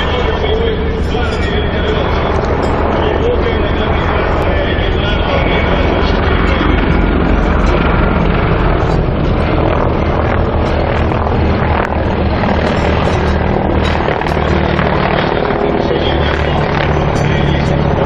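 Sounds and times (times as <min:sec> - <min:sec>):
helicopter rotor and turbine: 0:00.0 - 0:18.0.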